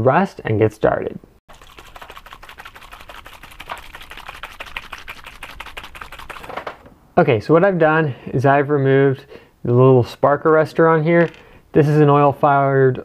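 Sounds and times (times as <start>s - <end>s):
small jar rattling: 1.5s - 6.5s, 11.2s - 11.6s.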